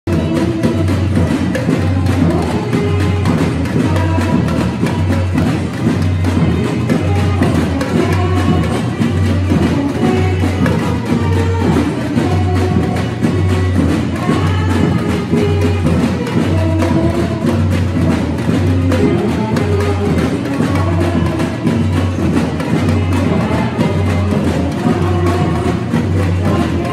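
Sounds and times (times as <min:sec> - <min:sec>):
higher drums and percussion: 0:00.0 - 0:26.9
melody over samba rhythm: 0:00.1 - 0:26.9.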